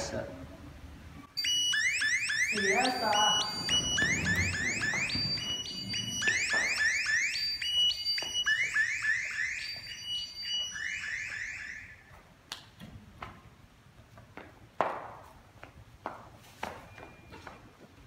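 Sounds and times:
electronic alarm chirps: 1.3 - 12.0.

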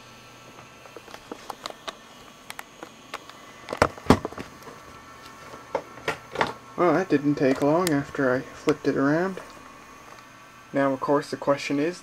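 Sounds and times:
small clicks and crackles: 0.6 - 6.6.

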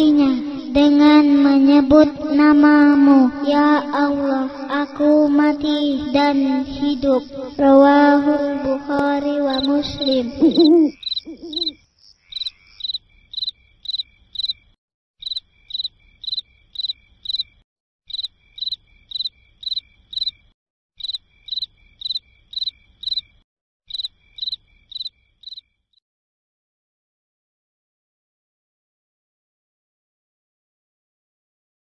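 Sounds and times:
cricket chirping: 9.5 - 25.9.

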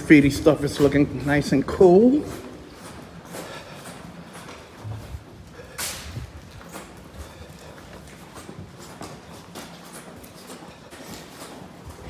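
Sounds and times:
footsteps on concrete: 0.0 - 12.0.

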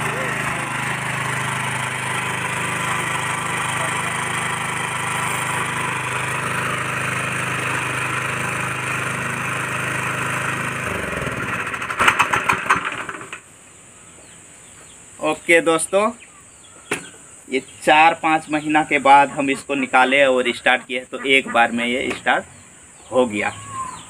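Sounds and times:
engine chugging as it stops: 0.0 - 13.4
small petrol engine idling: 0.0 - 13.5.

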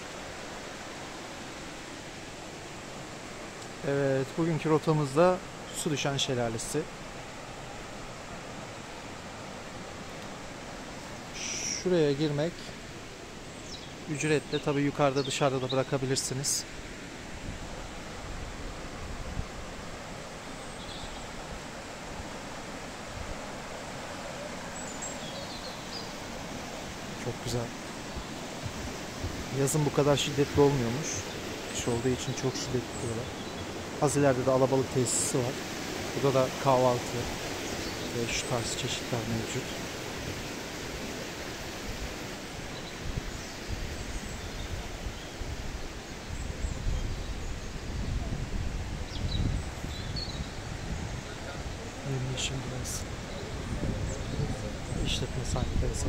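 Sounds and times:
mountain stream rushing: 0.0 - 56.0.

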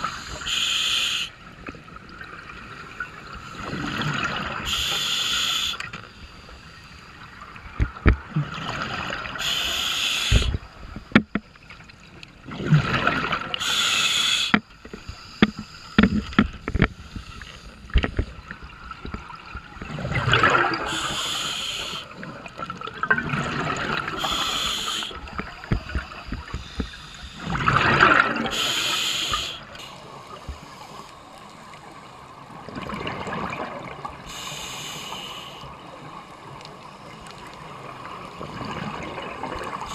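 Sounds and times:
diver breathing through regulator: 0.0 - 1.4, 4.6 - 7.1, 9.3 - 10.7, 13.6 - 18.0, 20.8 - 22.2, 24.0 - 31.4, 34.2 - 35.8
exhaled bubbles gurgling: 2.1 - 5.7, 7.4 - 10.8, 12.4 - 14.6, 17.9 - 29.6, 32.4 - 34.5, 36.4 - 39.9
sharp clicks and knocks: 10.4 - 11.5.

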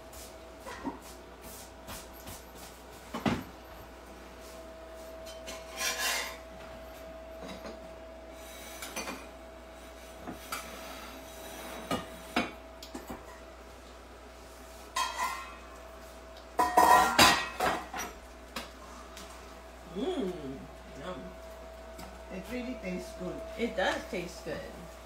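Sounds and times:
faint steady hum: 0.0 - 25.0
scraping rub: 5.5 - 6.4.

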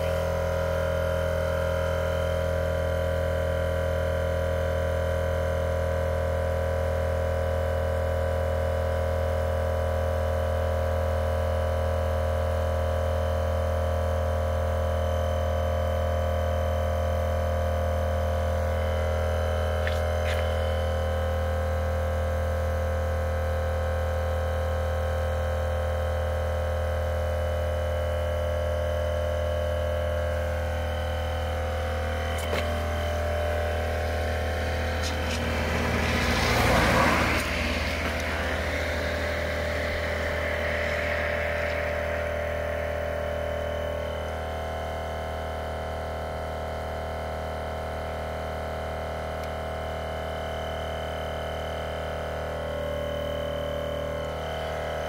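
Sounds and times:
tyre compressor humming: 0.0 - 5.5, 16.1 - 24.3, 27.6 - 45.8, 49.3 - 55.0.

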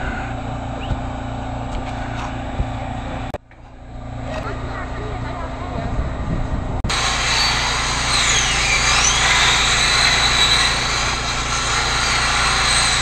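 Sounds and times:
high whine: 0.0 - 13.0
small motor running: 6.9 - 13.0.

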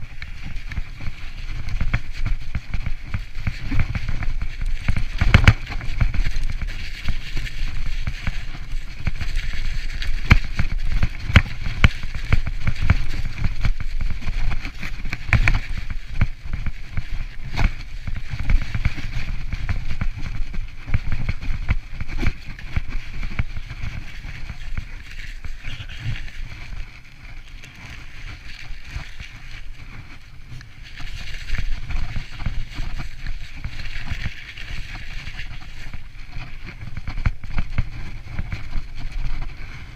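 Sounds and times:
bike knocks and rattles on bumps: 0.0 - 26.9
mountain bike rolling downhill: 0.0 - 39.9.

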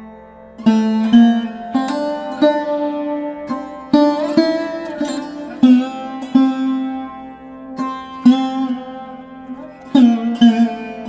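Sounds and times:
plucked string melody: 0.0 - 11.0.

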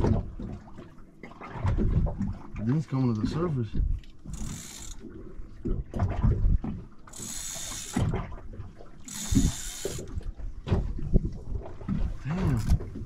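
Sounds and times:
fishing reel ratcheting and clicking: 4.3 - 5.0, 7.1 - 8.1, 9.1 - 10.1.

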